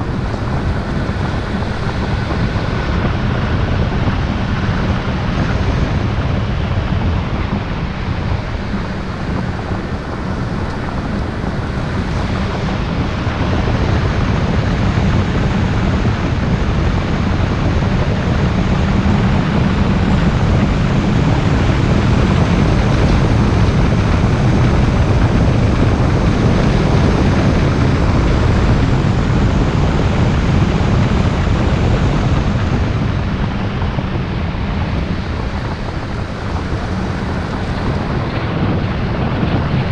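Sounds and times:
low engine drone: 0.0s - 39.9s
tyre and road noise: 0.0s - 39.9s.

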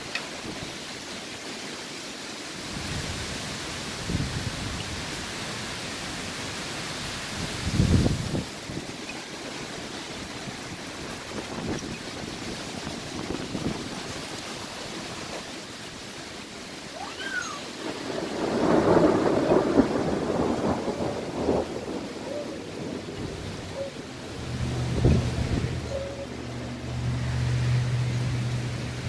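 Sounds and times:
rain: 0.0s - 29.0s
storm wind: 2.2s - 29.0s
crackling rumble of thunder: 17.7s - 26.0s.

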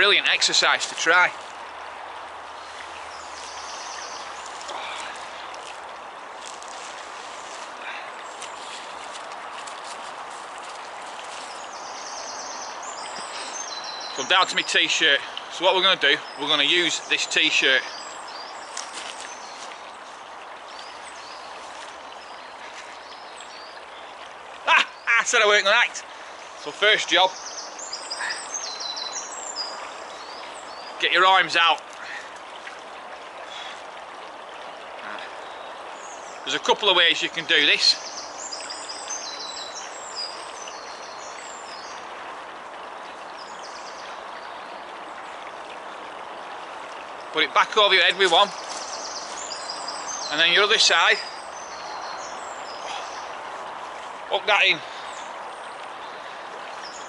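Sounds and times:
stream rushing: 0.0s - 57.0s
t-shirt rustling: 6.4s - 11.6s.

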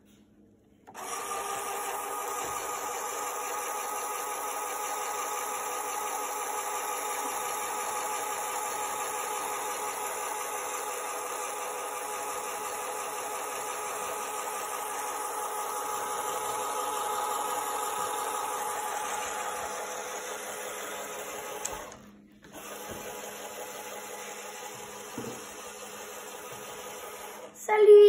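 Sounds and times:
small electric motor whining: 0.9s - 27.6s.

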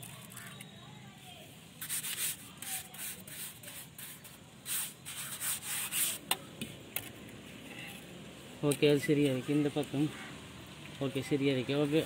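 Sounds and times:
trowel scraping wet mortar: 1.8s - 6.2s.

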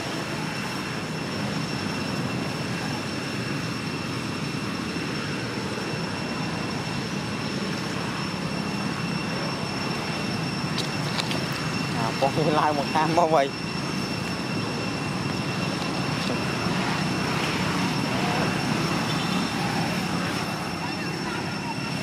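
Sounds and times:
high-pitched whine: 0.0s - 22.0s
rushing outdoor background noise: 0.0s - 22.0s.

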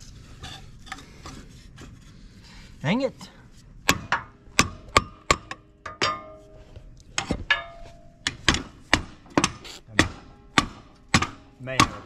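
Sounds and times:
metallic ring: 7.5s - 8.2s
hammer striking steel punch: 8.3s - 12.0s.

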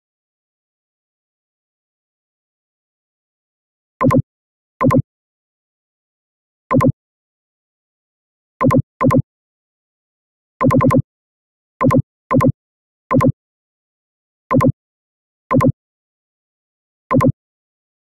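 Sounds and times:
mouse clicks: 4.0s - 4.2s, 4.8s - 5.0s, 6.7s - 6.9s, 8.6s - 9.2s, 10.6s - 11.0s, 13.1s - 13.3s, 14.5s - 14.7s, 15.5s - 15.7s, 17.1s - 17.3s.

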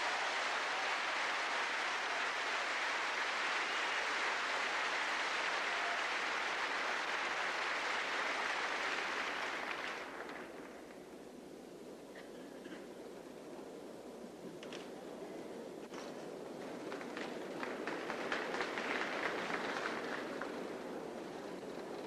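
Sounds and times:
crowd applauding: 0.0s - 11.0s, 16.6s - 22.0s.

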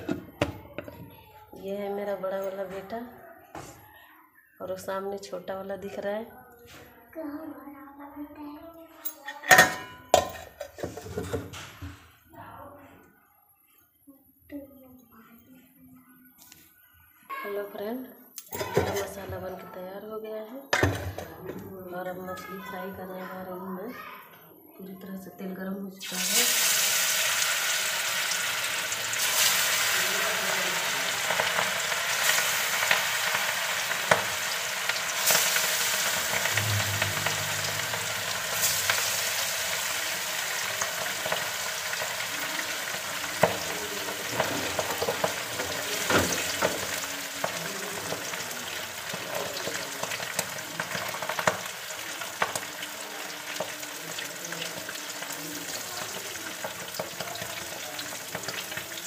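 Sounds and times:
fish sizzling in hot oil: 26.0s - 59.0s.

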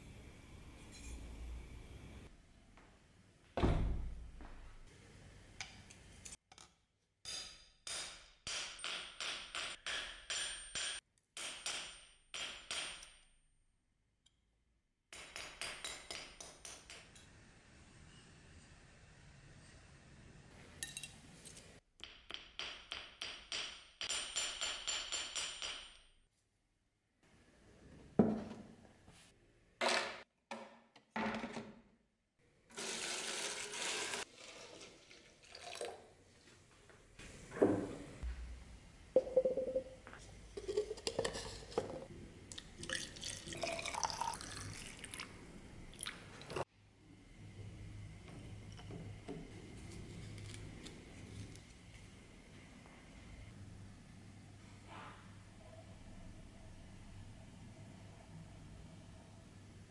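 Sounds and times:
water pouring and splashing: 32.9s - 36.1s.

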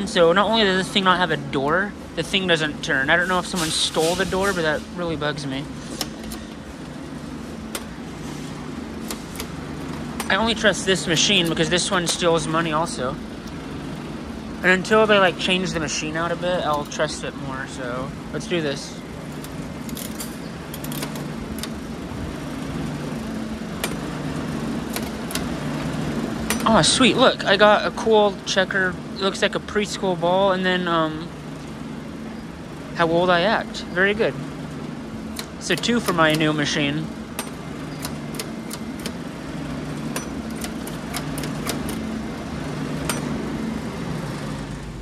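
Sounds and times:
low machine hum: 0.0s - 45.0s
metal crank clicking: 9.0s - 12.2s, 19.3s - 21.8s, 35.3s - 39.3s, 40.0s - 42.1s.

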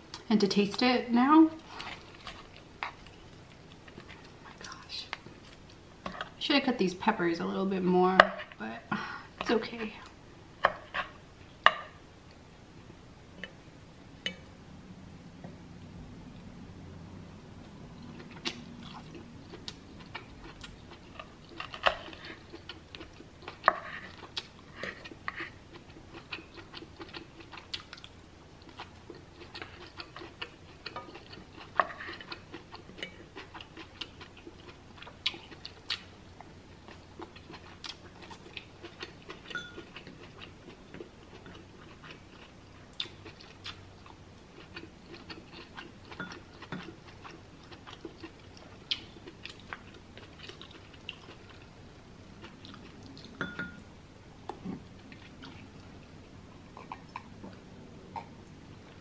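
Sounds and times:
chewing and wet mouth clicks: 41.3s - 51.6s.

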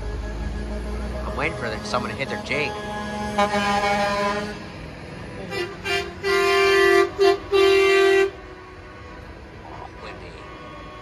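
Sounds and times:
truck air horn blasts: 0.7s - 4.8s, 5.4s - 8.8s, 10.1s - 11.0s.

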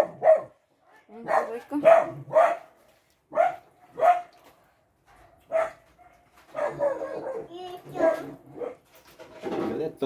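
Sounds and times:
dog barking: 0.0s - 4.4s, 5.2s - 8.8s.

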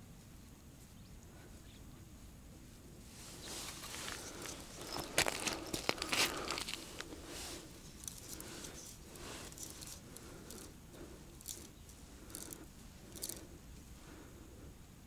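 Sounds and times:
soft rustles: 3.0s - 13.9s.

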